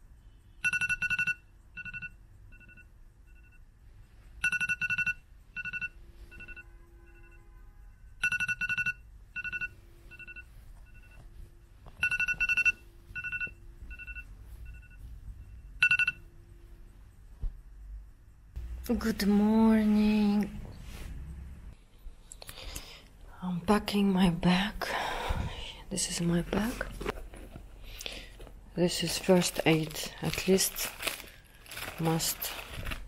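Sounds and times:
phone alarm beeps: 0:00.5 - 0:03.7, 0:04.4 - 0:07.5, 0:08.2 - 0:11.2, 0:12.0 - 0:16.3.

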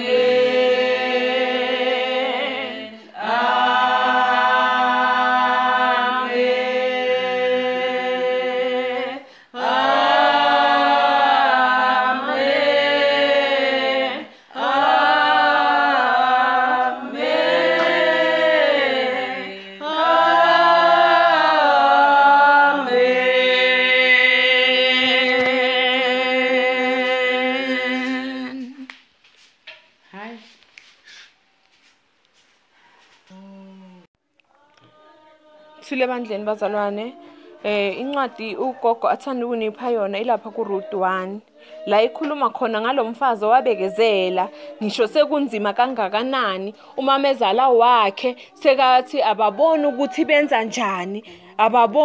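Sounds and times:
congregation singing a hymn: 0:00.0 - 0:28.9
singers breathing: 0:09.2 - 0:09.6, 0:14.3 - 0:14.6, 0:41.5 - 0:41.9, 0:44.5 - 0:44.8, 0:51.2 - 0:51.6.

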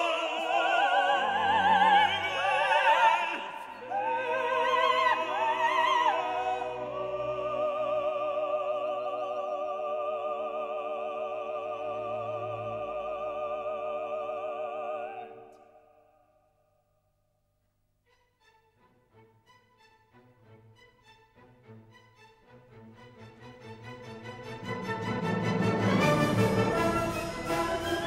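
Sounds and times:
operatic singing with orchestra: 0:00.0 - 0:16.0, 0:22.7 - 0:28.0.

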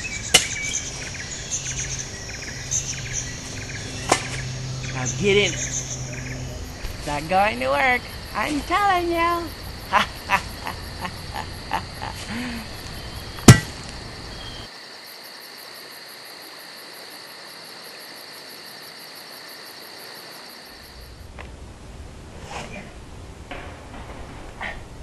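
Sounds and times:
insects trilling: 0:00.0 - 0:21.3
loud thump: 0:13.4 - 0:13.8
sharp knocks: 0:13.4 - 0:13.8.

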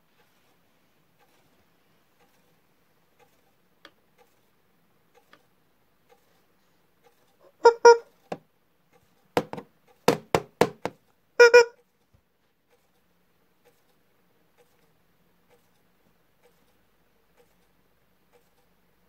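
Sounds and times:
rubber squeeze toy squeaking: 0:07.6 - 0:08.1, 0:11.4 - 0:11.7.

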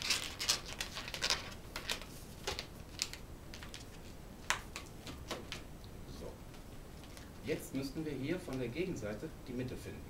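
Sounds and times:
balloon squeaking and rubbing: 0:00.0 - 0:01.5.

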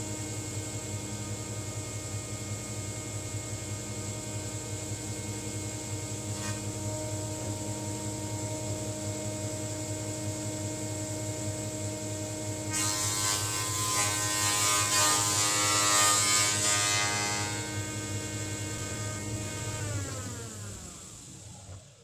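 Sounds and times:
board planing on cutterhead: 0:06.3 - 0:06.8, 0:12.7 - 0:20.4.

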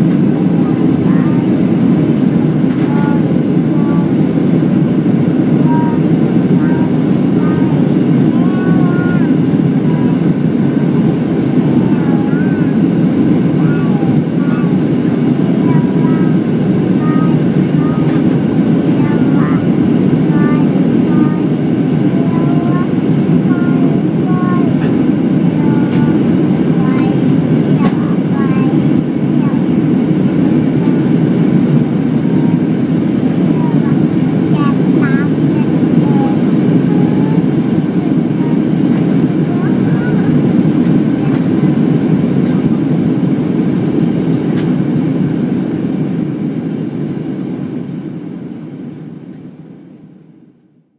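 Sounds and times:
faint passenger talk: 0:00.0 - 0:01.8, 0:02.7 - 0:04.3, 0:05.4 - 0:31.1, 0:32.1 - 0:43.2
airplane cabin engine roar: 0:00.0 - 0:50.9.

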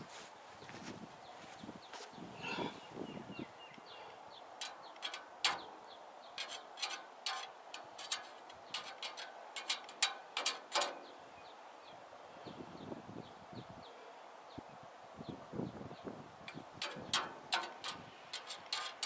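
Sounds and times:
rod clicking on steel: 0:04.6 - 0:05.7, 0:06.4 - 0:11.0, 0:16.8 - 0:19.0.

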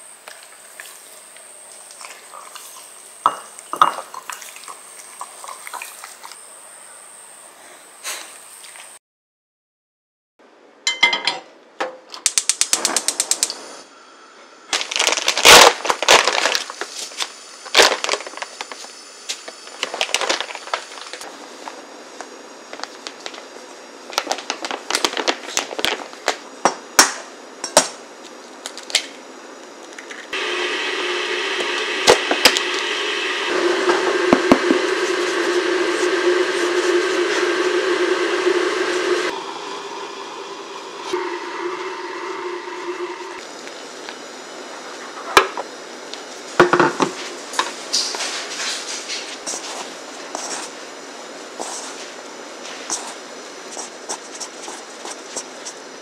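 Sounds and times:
electric kettle heating water: 0:00.0 - 0:06.4, 0:30.3 - 0:44.2
pot and bowl clattering: 0:03.3 - 0:04.4.

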